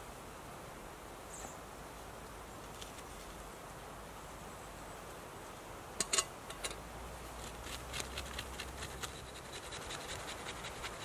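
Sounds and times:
quick scraping strokes: 7.4 - 11.0.

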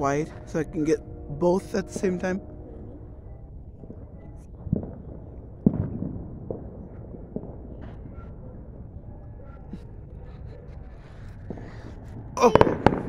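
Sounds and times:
faint fireworks crackling: 0.0 - 13.0
fireworks booming: 3.8 - 9.0, 9.7 - 13.0.

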